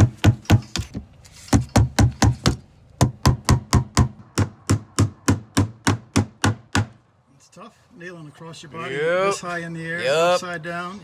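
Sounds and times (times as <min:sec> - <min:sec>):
hammer driving nails into wood: 0:00.0 - 0:07.0.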